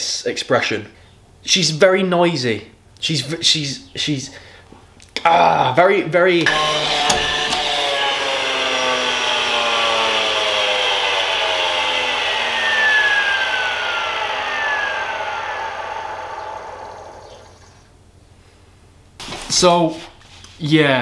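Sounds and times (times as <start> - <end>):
nail gun motor whirring: 6.4 - 17.8.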